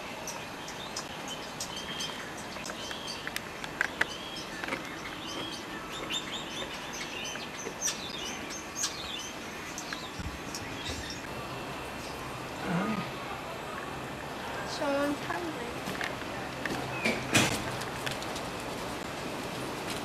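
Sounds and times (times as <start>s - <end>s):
small birds chirping: 0.0s - 17.5s.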